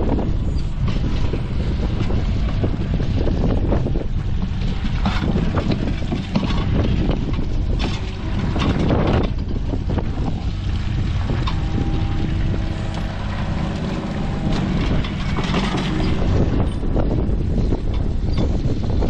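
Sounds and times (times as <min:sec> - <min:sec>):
diesel engine running: 0:00.0 - 0:19.0
wind buffeting microphone: 0:00.0 - 0:19.0
steady tone: 0:09.6 - 0:17.5
bucket scraping wet soil and stone: 0:10.1 - 0:16.4.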